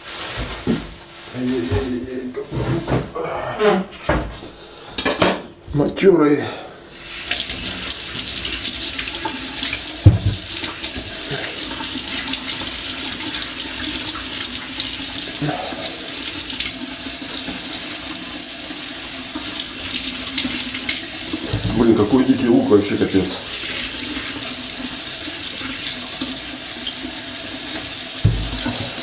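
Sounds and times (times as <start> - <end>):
tap running into metal sink: 7.3 - 14.2, 20.3 - 22.2, 27.7 - 29.0
sharp knock: 28.2 - 28.8.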